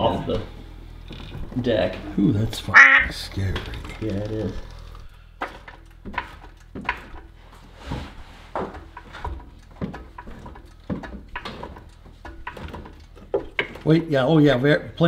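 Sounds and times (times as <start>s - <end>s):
floor jack pumping clicks: 3.3s - 7.8s, 8.5s - 14.3s.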